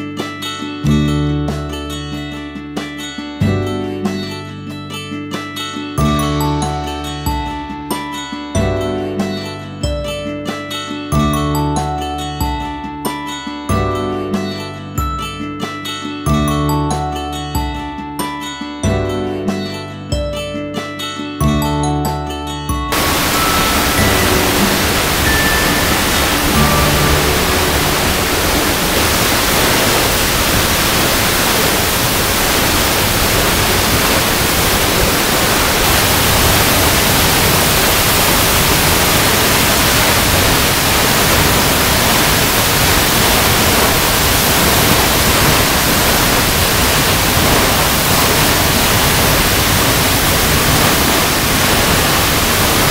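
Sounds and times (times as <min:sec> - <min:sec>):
waterfall rushing: 0:22.9 - 0:52.9.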